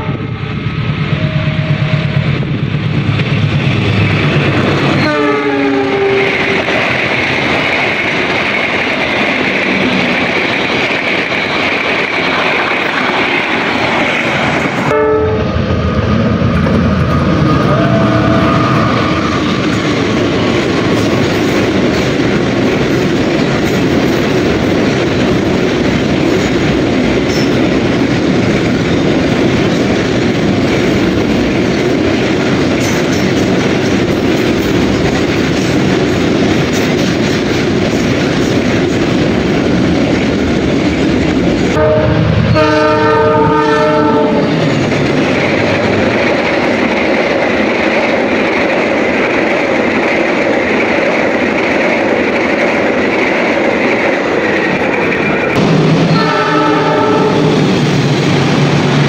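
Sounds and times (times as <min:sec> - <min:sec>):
freight train passing: 0:00.0 - 0:59.0
passenger train running past: 0:00.0 - 0:59.0
train horn blast: 0:05.0 - 0:06.6, 0:14.9 - 0:15.6, 0:41.7 - 0:44.6, 0:56.1 - 0:57.7.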